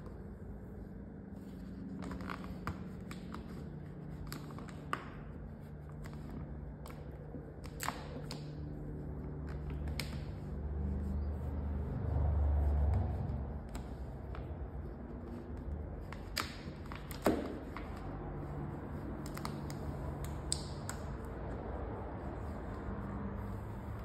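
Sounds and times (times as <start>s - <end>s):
steady low hum: 0.0s - 24.0s
plastic film ticks and snaps: 1.8s - 5.3s, 5.9s - 8.7s, 9.4s - 10.5s, 16.0s - 18.1s, 19.1s - 21.2s.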